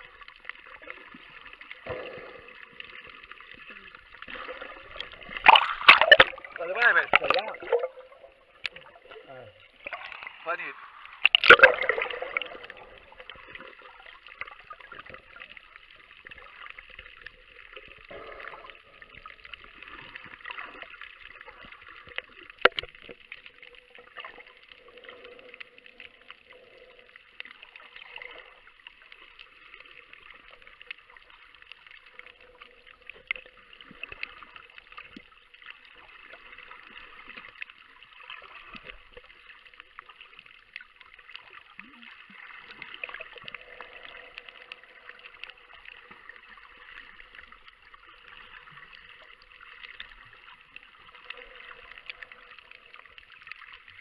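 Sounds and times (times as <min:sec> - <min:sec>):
underwater crackling hiss: 0:00.8 - 0:08.9, 0:09.8 - 0:23.2
loud underwater clicks: 0:11.1 - 0:12.2.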